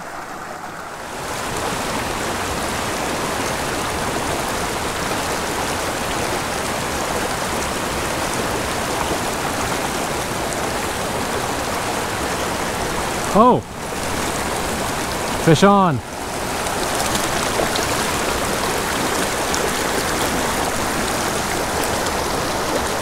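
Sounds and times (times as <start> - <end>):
creek water rushing: 0.0 - 23.0.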